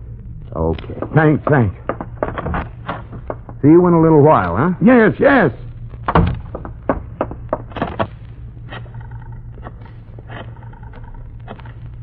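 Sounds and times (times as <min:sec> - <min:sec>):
low hum of old recording: 0:00.0 - 0:12.0
knock: 0:06.1 - 0:07.9.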